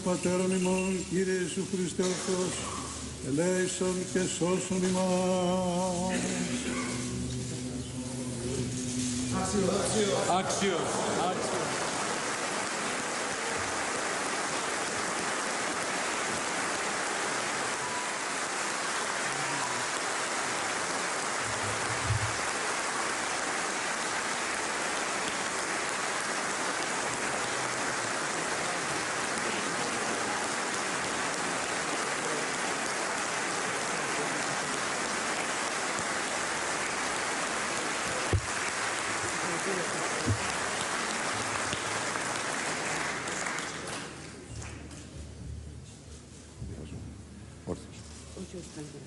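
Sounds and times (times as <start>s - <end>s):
large crowd applauding: 9.6s - 45.0s.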